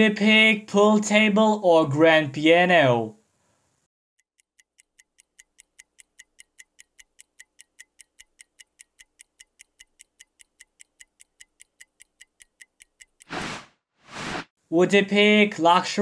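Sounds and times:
clock ticking: 4.4s - 13.3s.

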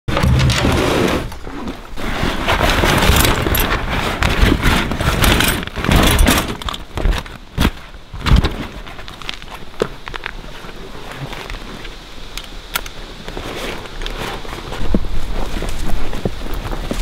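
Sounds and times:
canvas pack rustling: 0.6s - 9.6s
metal traps clinking and rattling: 2.6s - 6.9s.

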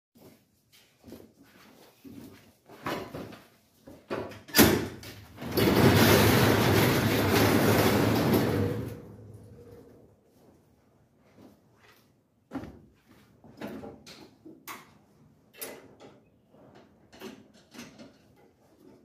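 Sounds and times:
garage door rattling up tracks: 4.4s - 9.9s.

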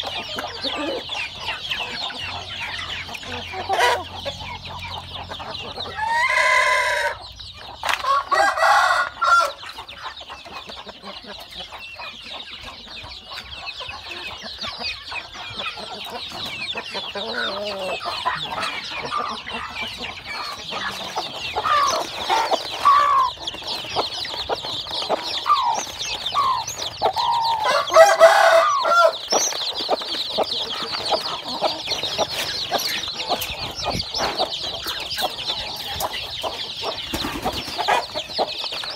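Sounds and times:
chickens clucking: 0.0s - 38.9s
rooster crowing: 5.9s - 7.2s, 8.0s - 9.6s, 27.2s - 29.2s
high-pitched chirping: 11.4s - 38.9s.

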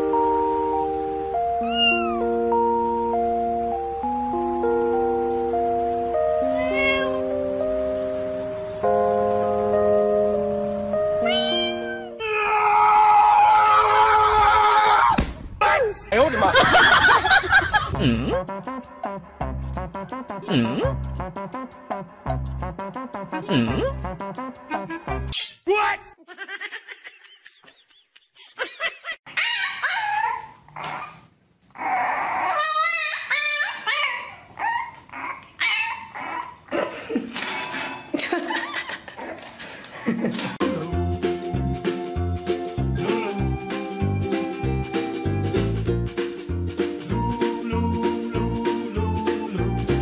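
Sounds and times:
background music: 0.0s - 12.3s, 16.2s - 25.4s, 40.3s - 50.0s
puppy whining and yelping: 1.6s - 2.3s, 29.3s - 36.7s
dog howling: 12.0s - 15.2s.

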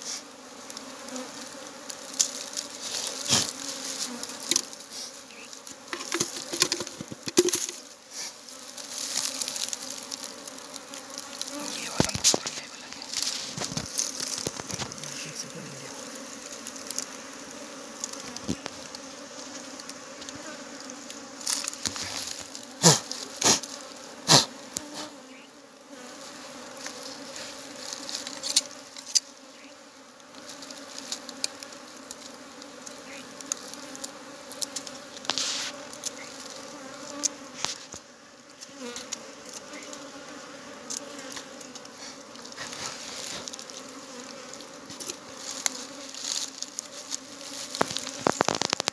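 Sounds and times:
bees buzzing: 0.0s - 48.9s
sharp knocks and crackles: 5.9s - 7.9s, 11.8s - 15.0s, 47.6s - 48.9s.

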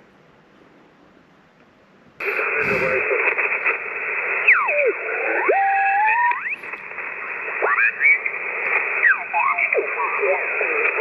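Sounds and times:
radio band hiss: 2.2s - 11.0s.

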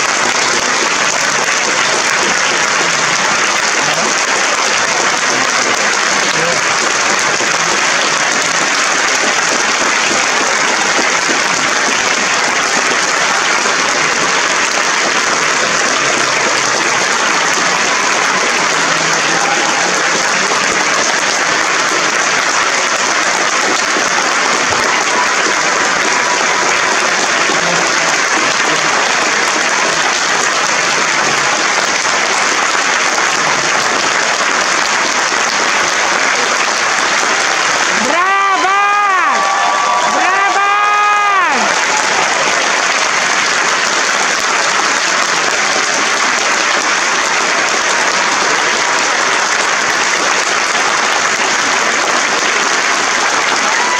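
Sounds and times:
audience applauding: 0.0s - 53.9s.

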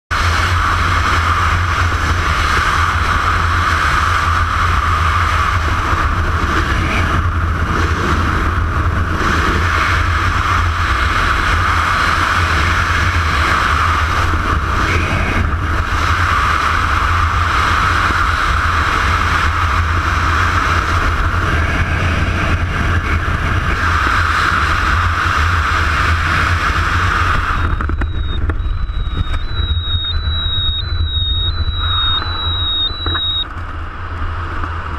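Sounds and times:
wind rushing over microphone: 0.1s - 34.9s
thin high tone: 27.5s - 33.5s.

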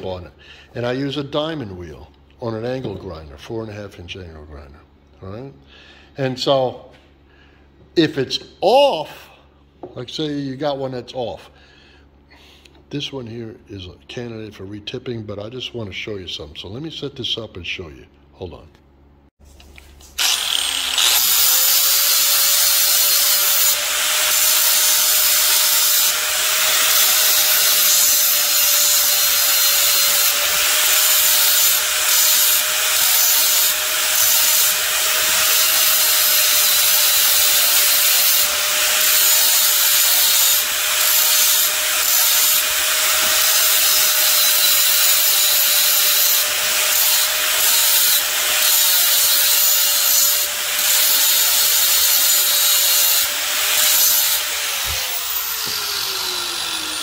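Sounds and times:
angle grinder motor whine: 20.2s - 57.0s
grinding wheel on metal: 20.2s - 57.0s.

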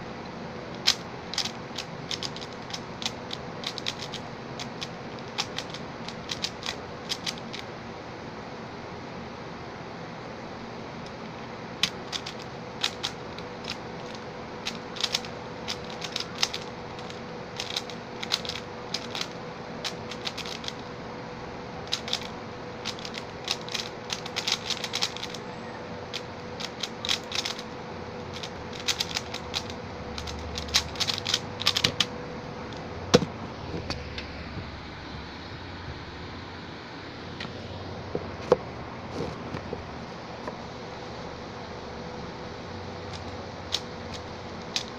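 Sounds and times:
plastic puzzle cube clicks: 0.8s - 7.6s, 11.8s - 20.8s, 21.9s - 25.4s, 26.1s - 27.6s, 28.3s - 32.1s.

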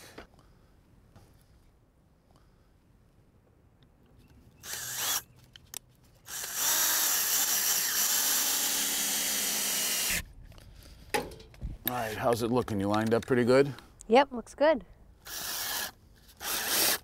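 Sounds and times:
cordless drill driving a screw: 4.6s - 5.2s, 6.3s - 10.2s, 15.2s - 17.0s.

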